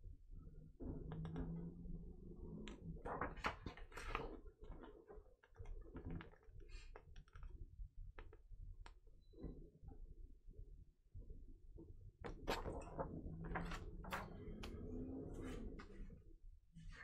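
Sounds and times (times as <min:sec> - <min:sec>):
paper rustling: 0:12.3 - 0:14.8.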